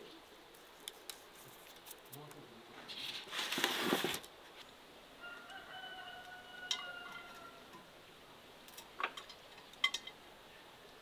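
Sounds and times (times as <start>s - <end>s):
faint rooster crowing: 5.2s - 7.9s.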